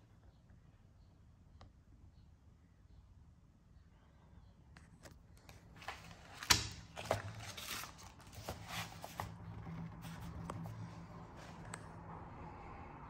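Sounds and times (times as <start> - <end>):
paper pages rustling: 5.0 - 11.9.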